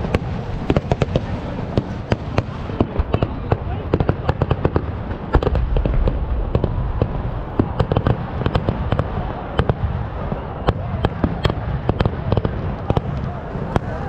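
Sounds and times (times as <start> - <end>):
firework bangs: 0.0 - 14.0
low rumble: 4.9 - 10.5.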